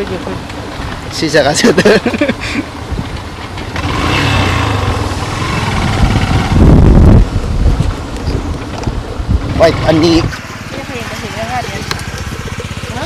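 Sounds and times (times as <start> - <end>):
motorbike engine running: 0.0 - 13.0
wind rumbling on microphone: 2.7 - 10.5.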